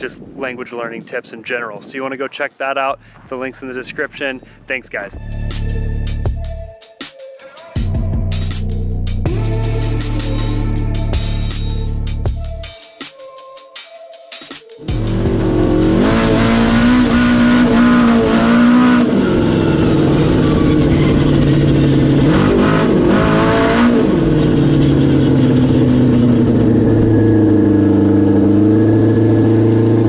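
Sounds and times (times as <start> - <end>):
snowmobile engine revving: 14.9 - 30.0.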